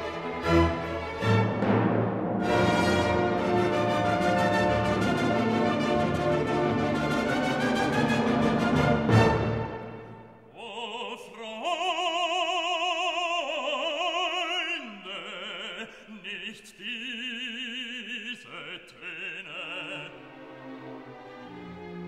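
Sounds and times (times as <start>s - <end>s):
orchestral music: 0.0s - 10.5s, 19.6s - 22.0s
operatic voice singing: 10.5s - 20.5s.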